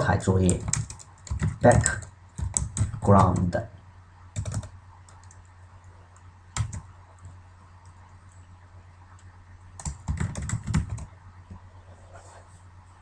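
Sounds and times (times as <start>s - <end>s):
computer keyboard typing: 0.4s - 3.6s, 4.4s - 5.5s, 6.5s - 8.0s, 9.1s - 11.1s.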